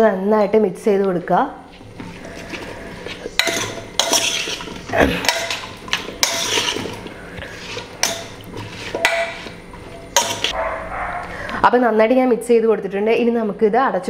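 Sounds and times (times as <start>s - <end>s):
spoon scraping and clinking pot: 2.1s - 10.6s.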